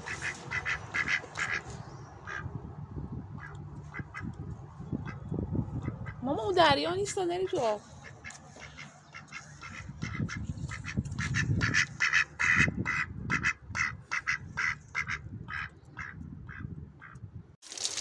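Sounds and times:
duck quacking: 0.0s - 1.6s, 2.2s - 2.5s, 7.4s - 17.2s.

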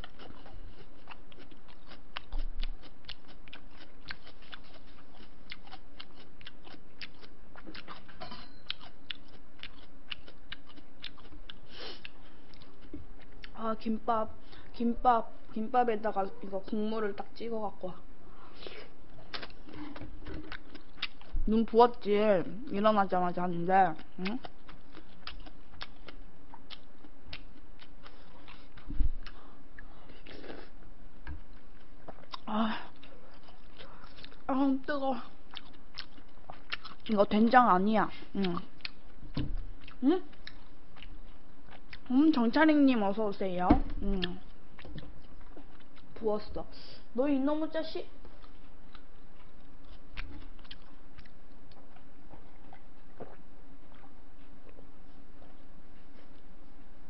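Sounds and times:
person chewing crisp food: 0.0s - 13.6s, 18.3s - 21.5s, 23.9s - 34.6s, 35.2s - 42.5s, 44.0s - 46.2s, 48.2s - 57.0s
low thump: 43.6s - 44.1s.

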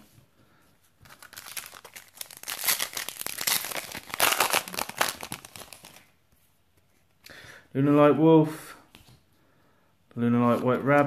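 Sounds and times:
foil wrapper crinkling: 1.1s - 6.1s.

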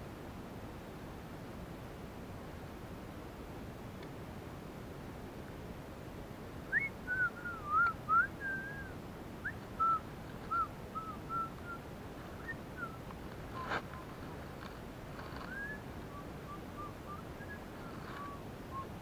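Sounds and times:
person whistling: 6.7s - 11.8s, 15.4s - 19.0s.

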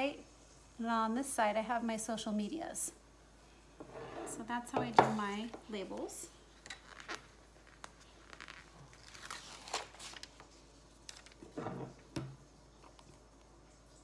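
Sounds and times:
label sheet rustling and crinkling: 5.9s - 11.6s.

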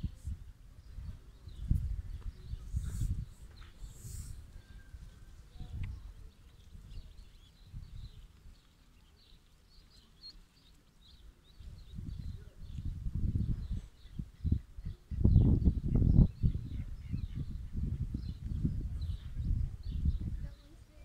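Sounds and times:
wind noise on microphone: 0.0s - 8.7s, 11.4s - 21.0s
ducklings peeping: 5.7s - 12.8s, 13.6s - 18.4s.

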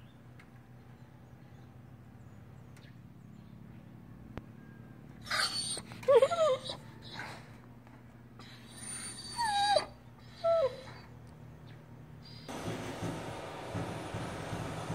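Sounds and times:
dog whining: 5.2s - 7.6s, 8.4s - 11.2s.

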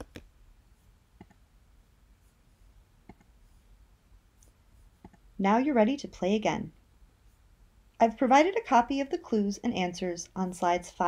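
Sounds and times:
faint computer clicks: 3.0s - 3.3s, 4.4s - 5.3s.

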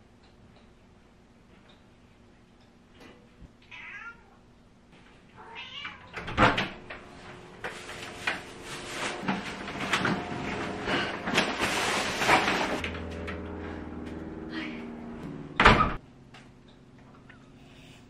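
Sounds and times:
young cat meowing: 3.7s - 4.4s, 5.4s - 6.1s
plastic bags rustling: 7.5s - 12.8s
door opening with thump: 15.6s - 16.0s.

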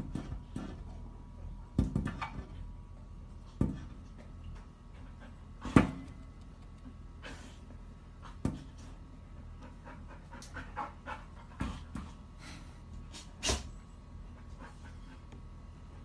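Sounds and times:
dog panting: 9.2s - 12.6s, 14.2s - 16.0s.

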